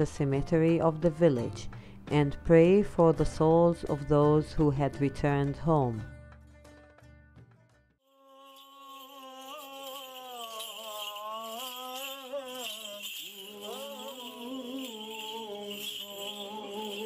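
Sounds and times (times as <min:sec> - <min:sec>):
censer bells jingling: 0:08.4 - 0:17.0.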